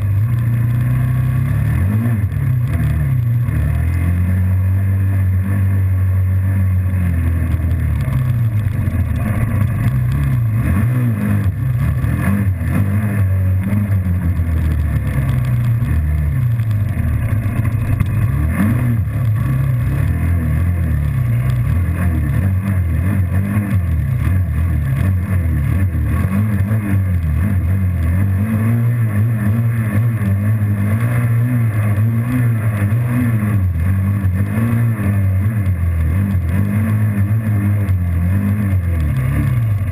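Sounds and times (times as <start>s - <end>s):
quad bike engine revving: 0.0s - 39.9s.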